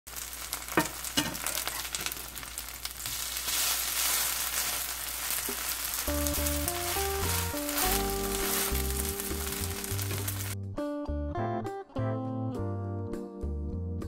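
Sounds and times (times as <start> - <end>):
batter sizzling in hot oil: 0.1 - 10.6.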